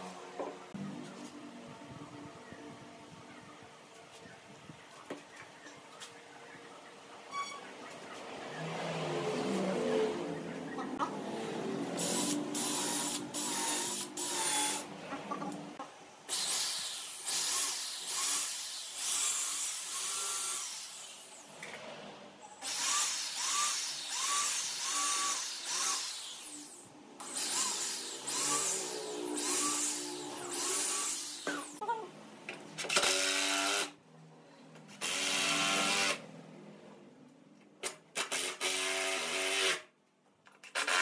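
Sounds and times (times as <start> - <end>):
power tool whirring: 11.9 - 14.9, 22.6 - 31.8, 35.0 - 36.2.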